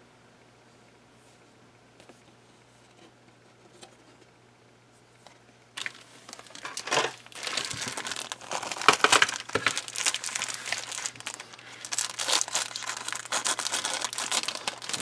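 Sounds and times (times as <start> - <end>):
plastic bag crinkling: 5.8 - 15.0.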